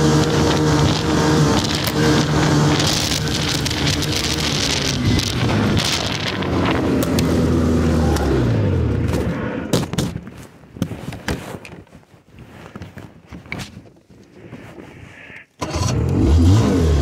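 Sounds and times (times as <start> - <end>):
snowmobile engine slowing down: 0.0 - 9.7.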